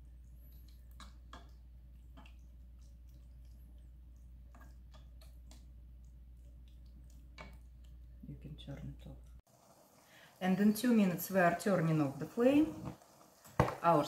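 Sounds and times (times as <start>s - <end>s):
spatula stirring thick sauce: 0.1s - 9.2s.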